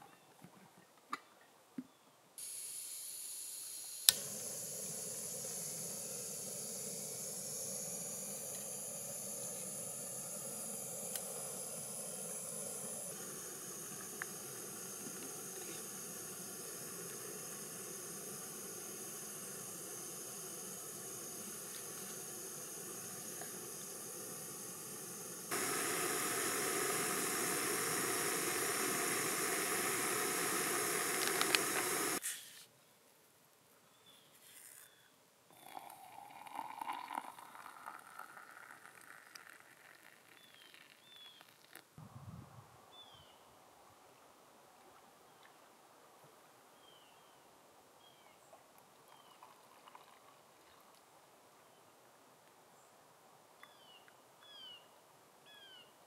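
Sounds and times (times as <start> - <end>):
gas burner hissing: 2.4 - 32.2.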